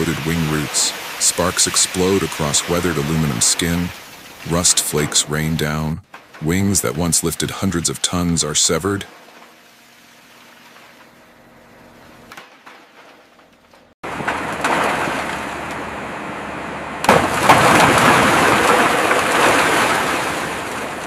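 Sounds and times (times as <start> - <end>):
metal crunching and debris breaking: 12.3 - 15.9, 17.0 - 21.0
loud metal crash: 17.0 - 20.8.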